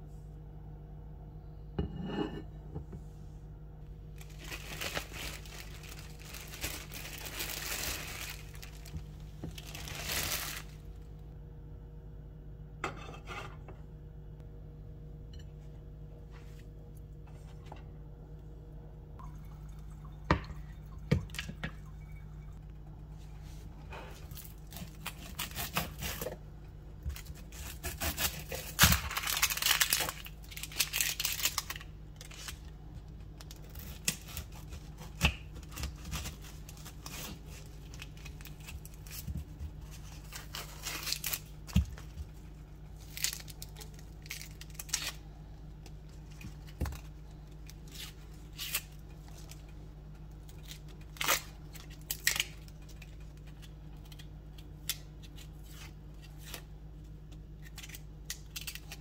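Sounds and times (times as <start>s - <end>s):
steady low hum: 0.0s - 59.0s
onion skin crackling: 4.2s - 10.9s, 27.1s - 32.8s, 33.4s - 56.7s, 57.4s - 59.0s.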